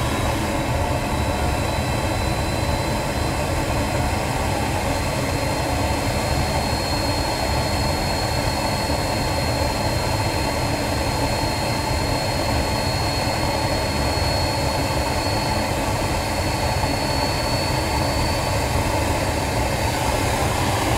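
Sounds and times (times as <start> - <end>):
jet engine high whine: 0.0 - 20.9
combustion and air rush: 17.9 - 20.9.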